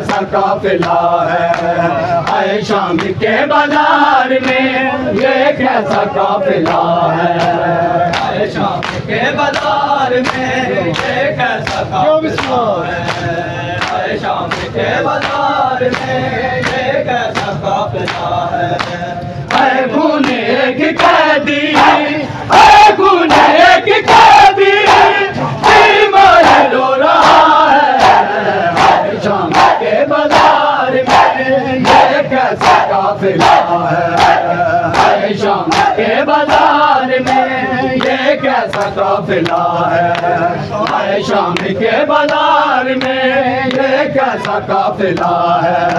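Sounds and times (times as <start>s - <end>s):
crowd of men chanting: 0.0s - 45.9s
chest-beating slaps: 24.9s - 41.7s.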